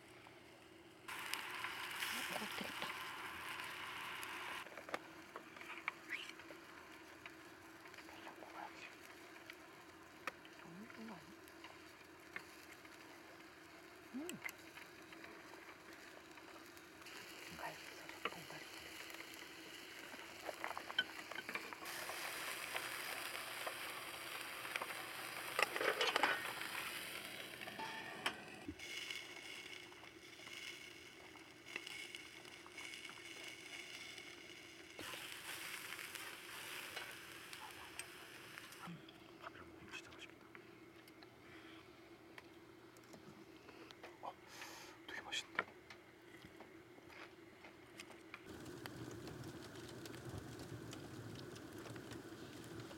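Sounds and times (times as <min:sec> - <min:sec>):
meat sizzling on a grill: 0:01.1 - 0:27.9, 0:28.8 - 0:38.9, 0:48.5 - 0:52.9.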